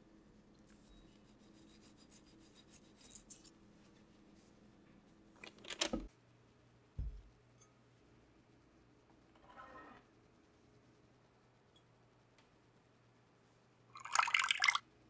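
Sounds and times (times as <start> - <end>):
soft dull thump: 7.0 - 7.3
soft scraping on cake: 9.4 - 10.1.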